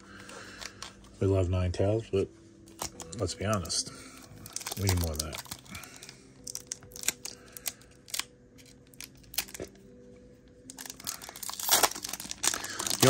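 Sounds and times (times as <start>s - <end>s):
foil wrapper tearing and crinkling: 2.8s - 9.8s, 10.7s - 13.0s.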